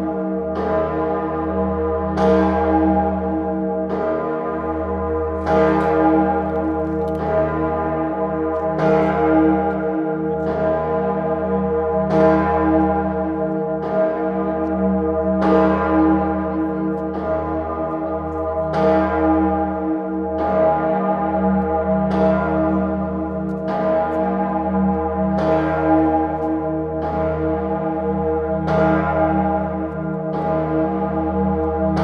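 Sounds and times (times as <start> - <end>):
large church bell pealing: 0.0 - 32.0.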